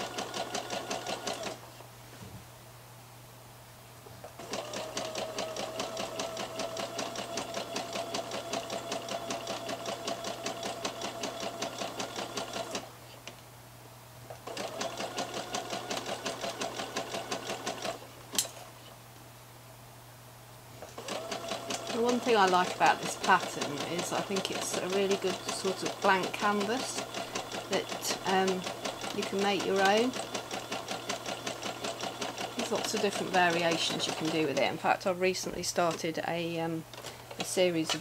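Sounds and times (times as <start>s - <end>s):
sewing machine stitching: 0.0s - 1.6s, 4.4s - 12.9s, 14.4s - 18.0s, 20.8s - 34.9s.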